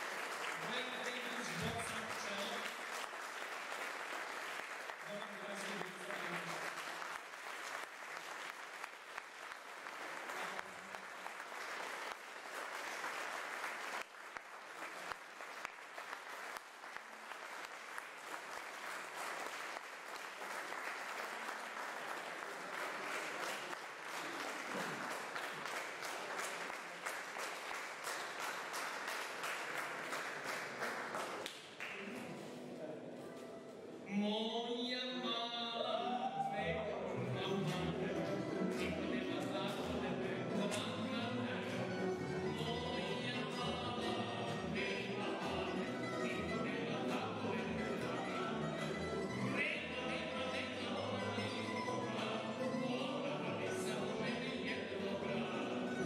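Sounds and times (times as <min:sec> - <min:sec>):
audience applauding: 0:00.0 - 0:32.4.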